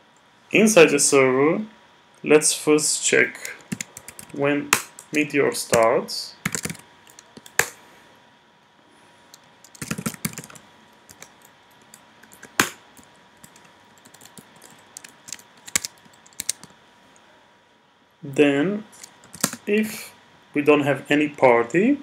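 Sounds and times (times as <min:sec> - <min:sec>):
typing on keyboard: 0:03.6 - 0:04.4, 0:06.4 - 0:07.7, 0:09.6 - 0:16.7, 0:19.0 - 0:19.6.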